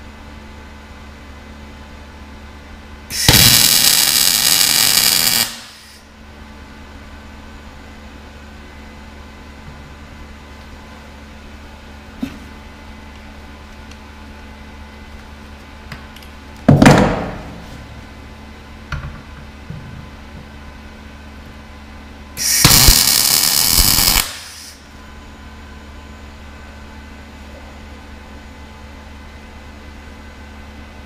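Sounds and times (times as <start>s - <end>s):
welding arc hissing: 3.1s - 6.1s, 22.4s - 24.8s.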